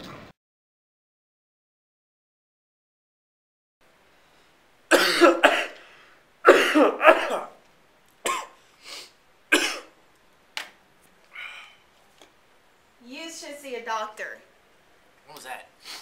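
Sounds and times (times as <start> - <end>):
person coughing: 4.9 - 5.8, 6.4 - 7.6, 8.2 - 8.6, 9.5 - 9.9.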